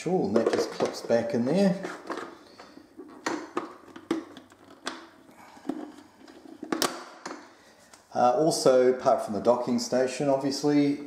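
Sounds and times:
plastic clicks and knocks: 1.8 - 7.5.

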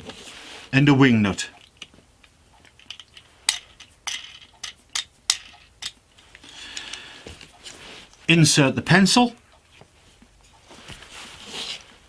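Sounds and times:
soft handling rustle: 0.0 - 2.1, 6.2 - 8.3, 9.5 - 12.0.

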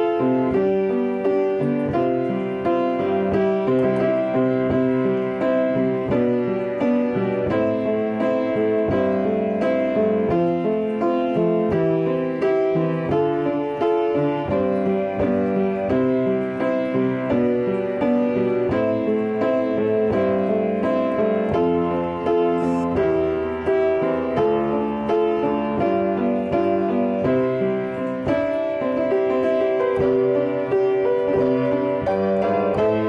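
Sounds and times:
solo piano ballad: 0.0 - 33.0.

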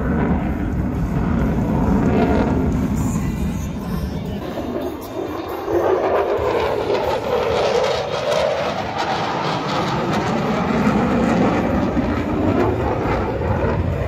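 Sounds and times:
jet engine flying past: 0.0 - 14.0.

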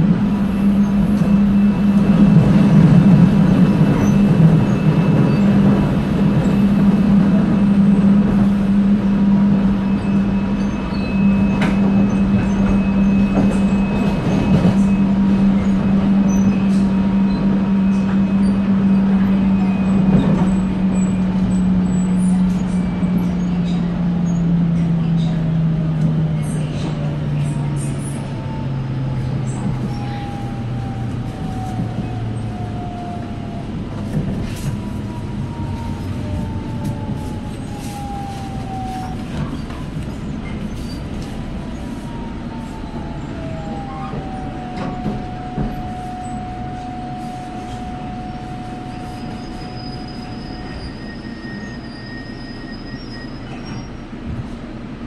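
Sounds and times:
train running gear rumble: 0.0 - 55.0
brake squeals: 9.8 - 25.4, 29.2 - 33.1, 34.2 - 54.0.

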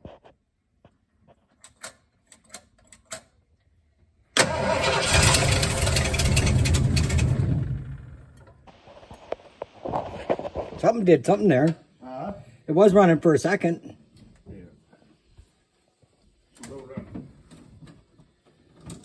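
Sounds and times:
truck engine starting and dying: 4.4 - 8.7.

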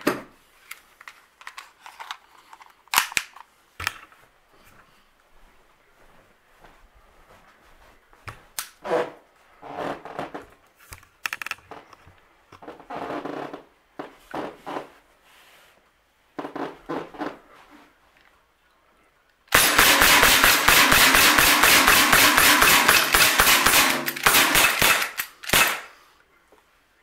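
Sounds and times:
air pistol shots: 19.5 - 26.0.

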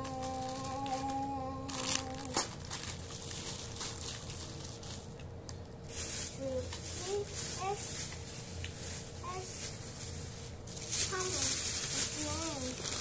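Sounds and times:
hummed note: 0.0 - 2.5
plastic packaging crinkling: 0.0 - 13.0.

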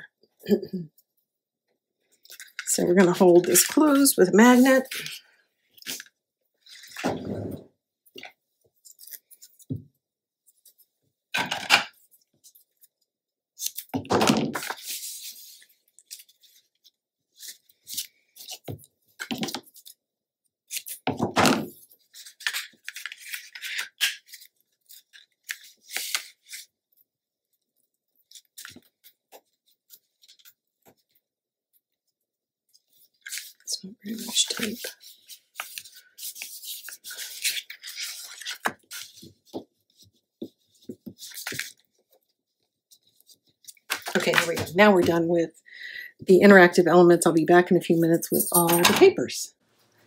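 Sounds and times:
cardstock rustling and tapping: 43.0 - 45.2.

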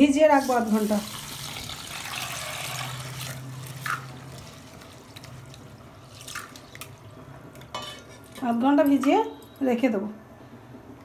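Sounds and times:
water pouring onto rice: 1.0 - 6.7.

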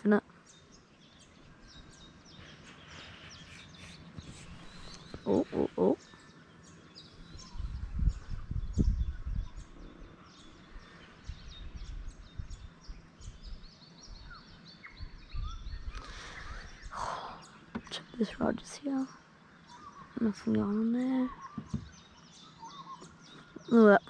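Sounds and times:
birds chirping: 0.0 - 24.0
bird trill: 0.5 - 24.0
low thumps and rumbles: 7.3 - 9.7.

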